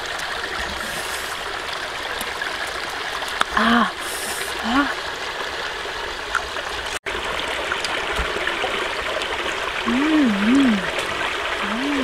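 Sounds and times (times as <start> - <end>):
woman humming while eating: 9.9 - 11.0, 11.6 - 12.0.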